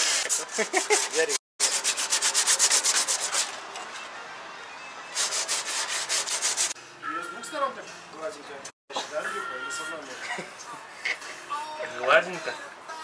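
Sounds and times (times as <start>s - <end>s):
sanding back and forth: 0.0s - 3.6s, 5.2s - 6.8s.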